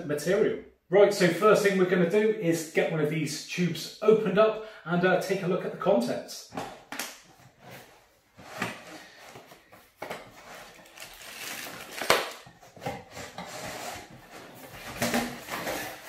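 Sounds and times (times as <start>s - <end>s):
cardboard and paper rustling: 7.4s - 16.0s.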